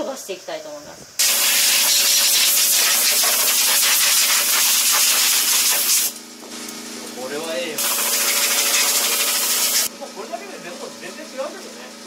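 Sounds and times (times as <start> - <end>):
compressed air gun hissing: 1.2 - 6.2, 7.8 - 9.9.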